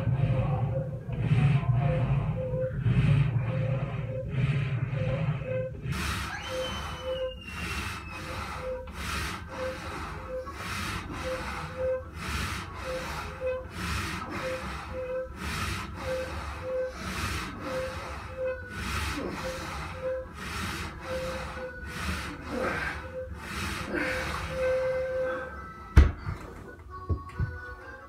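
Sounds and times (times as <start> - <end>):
man breathing hard: 0.0 - 25.8
short squeak: 6.3 - 8.3.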